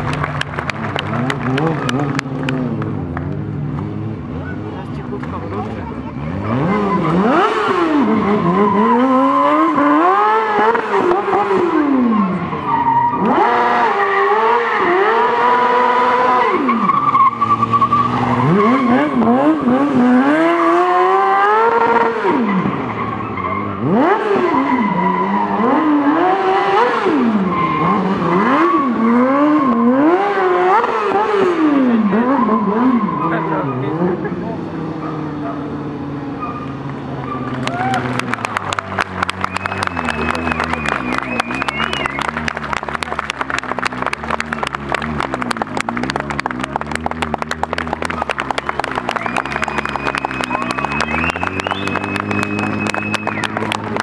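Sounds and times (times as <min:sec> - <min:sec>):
motorcycle engine revving: 0:00.0 - 0:54.0
tyre squeal: 0:06.5 - 0:30.9, 0:31.6 - 0:34.1, 0:36.3 - 0:38.2, 0:39.4 - 0:42.5, 0:48.5 - 0:53.8.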